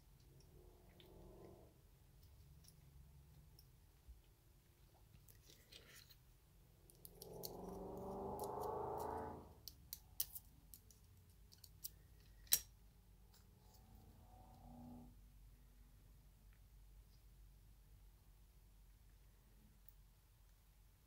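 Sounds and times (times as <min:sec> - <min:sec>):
small steel pistol parts clicking: 0:09.9 - 0:12.7.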